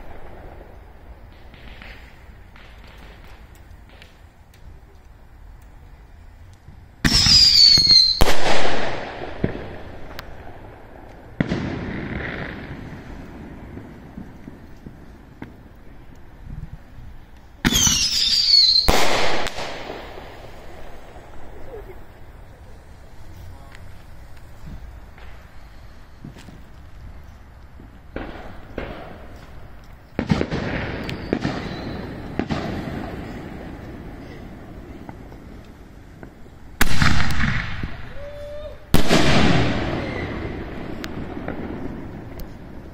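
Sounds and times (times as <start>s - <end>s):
firework bangs: 0.0s - 4.8s, 7.0s - 26.9s, 27.7s - 42.9s
firework whistle: 7.0s - 10.3s, 17.6s - 26.7s, 30.2s - 35.6s, 36.3s - 42.6s.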